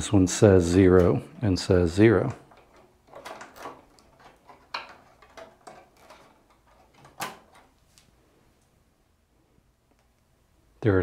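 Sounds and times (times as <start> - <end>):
cable rustling: 0.7 - 8.8.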